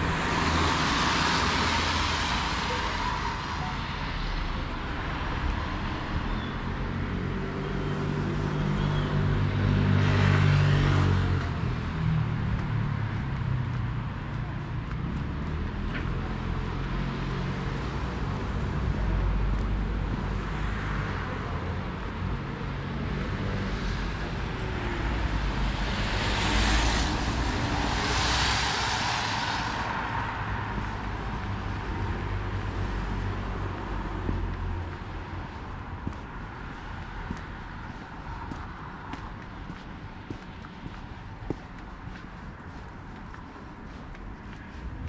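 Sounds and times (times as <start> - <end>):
low traffic rumble: 0.0 - 45.0
vehicle passing by: 23.1 - 45.0.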